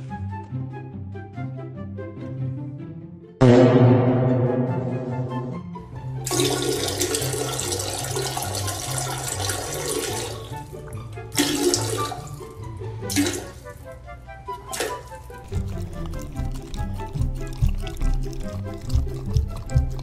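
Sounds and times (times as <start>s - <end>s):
toilet flushing: 6.2s - 13.9s, 14.6s - 20.0s
background music with bouncy bass: 10.5s - 20.0s.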